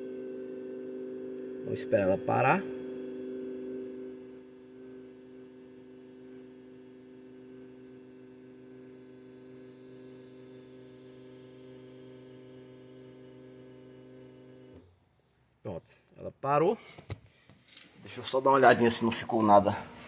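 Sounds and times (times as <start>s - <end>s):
electric fuel pump humming: 0.0s - 15.3s.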